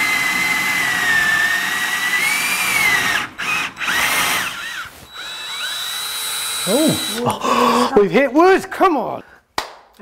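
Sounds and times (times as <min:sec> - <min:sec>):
cordless drill boring tile: 0:00.0 - 0:07.4.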